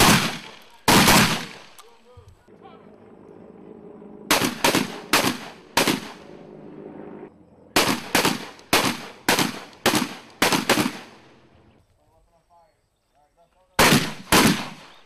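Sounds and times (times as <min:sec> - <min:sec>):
shotgun shots with echo: 0:00.0 - 0:01.8, 0:04.3 - 0:06.3, 0:07.8 - 0:11.2, 0:13.8 - 0:15.0.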